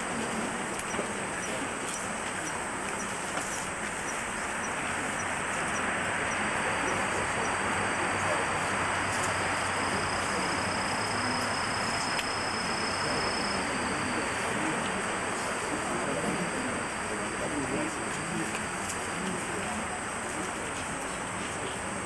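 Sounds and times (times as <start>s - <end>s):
thin high whine: 0.0s - 22.0s.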